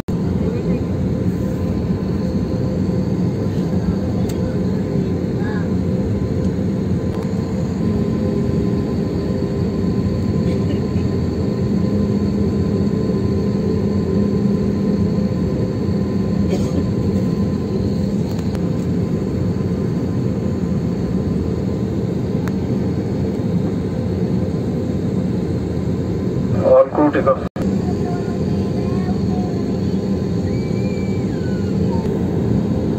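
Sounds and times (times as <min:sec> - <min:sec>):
jet engines rumbling: 0:00.0 - 0:32.9
faint steady whine: 0:00.2 - 0:32.9.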